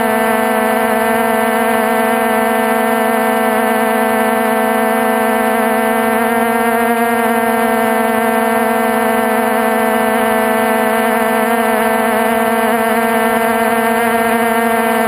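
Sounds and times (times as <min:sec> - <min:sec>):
drone propellers whirring: 0:00.0 - 0:15.0.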